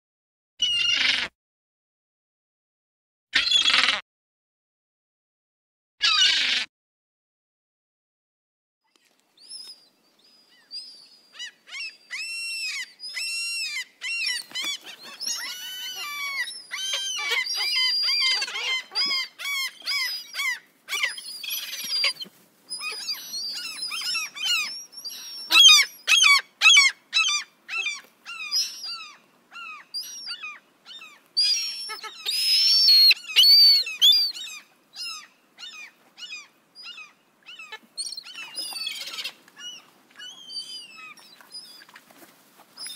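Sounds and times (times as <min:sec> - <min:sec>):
seagulls calling: 0:10.4 - 0:42.0.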